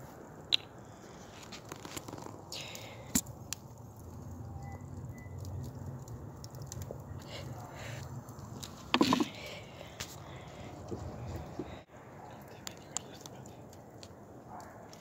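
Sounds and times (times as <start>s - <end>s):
campfire crackling: 0.0s - 15.0s
plastic bottle crinkling and clicking: 1.5s - 2.5s, 8.6s - 9.5s.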